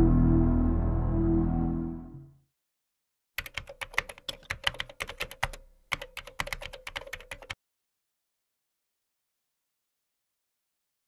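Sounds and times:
music: 0:00.0 - 0:02.5
keyboard typing clicks: 0:03.4 - 0:07.6.

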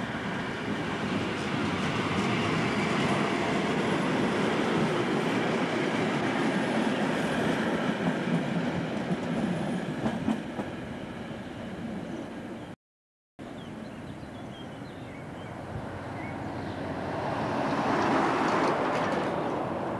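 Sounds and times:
train wheels clattering on rails: 0:00.7 - 0:10.8, 0:17.7 - 0:19.9.

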